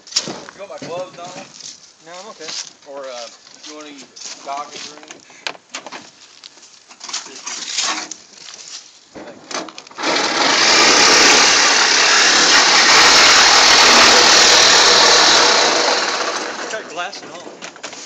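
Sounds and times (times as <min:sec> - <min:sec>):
power tool whirring: 0:09.9 - 0:16.9.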